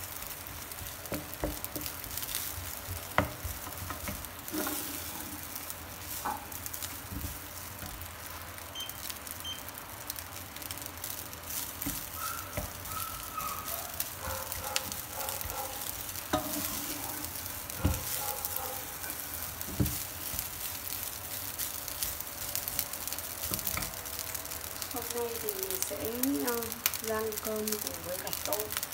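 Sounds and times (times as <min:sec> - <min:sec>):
rice sizzling in a frying pan: 0:00.0 - 0:28.9
wooden spatula scraping a pan: 0:00.7 - 0:08.1, 0:13.9 - 0:21.8.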